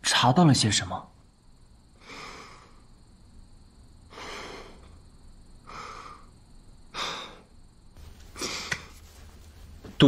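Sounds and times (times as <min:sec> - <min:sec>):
person breathing out heavily: 0:02.0 - 0:02.9, 0:04.1 - 0:05.0, 0:05.6 - 0:06.3, 0:06.9 - 0:07.5, 0:08.3 - 0:08.9.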